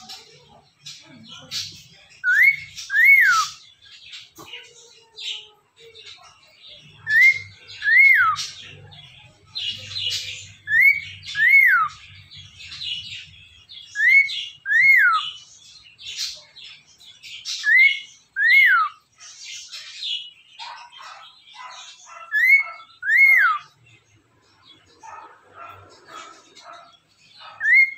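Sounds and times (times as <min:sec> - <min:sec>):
budgerigar chattering and warbling: 0:00.0 - 0:04.8, 0:06.1 - 0:15.4, 0:17.4 - 0:19.0, 0:20.6 - 0:23.8, 0:24.9 - 0:27.9.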